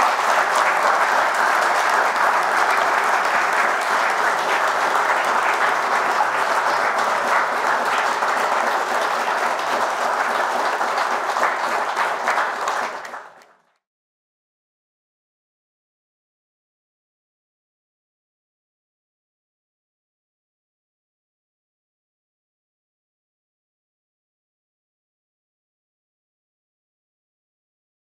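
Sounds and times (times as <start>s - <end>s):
audience applauding: 0.0s - 13.8s.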